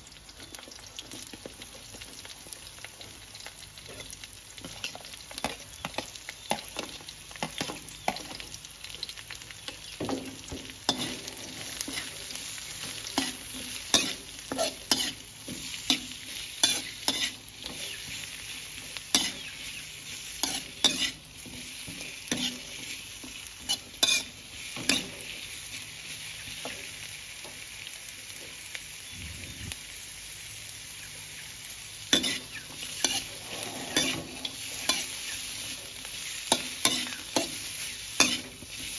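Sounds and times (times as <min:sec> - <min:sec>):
onions sizzling in a wok: 0:00.0 - 0:38.9
metal spatula scraping pan: 0:10.9 - 0:12.2, 0:13.0 - 0:18.2, 0:20.4 - 0:21.2, 0:21.8 - 0:23.0, 0:32.1 - 0:35.3, 0:38.2 - 0:38.6.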